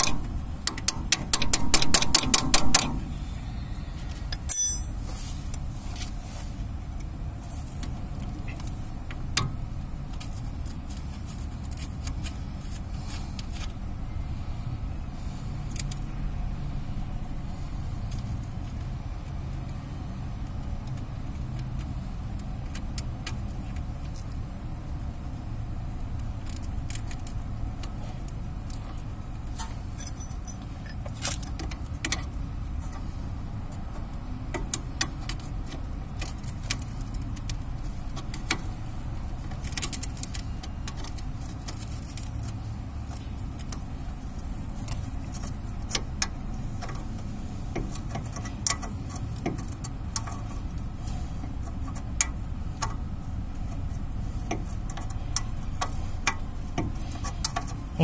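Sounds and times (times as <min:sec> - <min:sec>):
wrench clinking on bolts: 0:00.0 - 0:03.1, 0:04.3 - 0:05.2, 0:29.6 - 0:31.0
steady low hum: 0:00.0 - 0:58.0.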